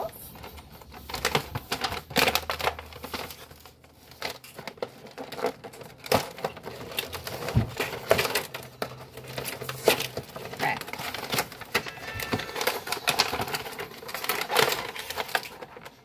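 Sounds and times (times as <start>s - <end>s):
packaging crinkling and rustling: 0.0s - 16.0s.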